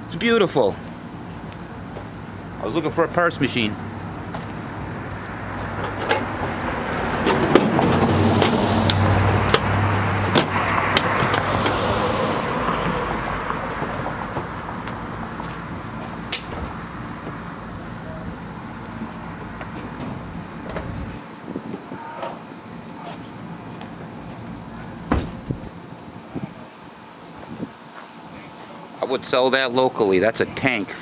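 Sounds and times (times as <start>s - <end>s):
car passing: 2.4s - 21.2s.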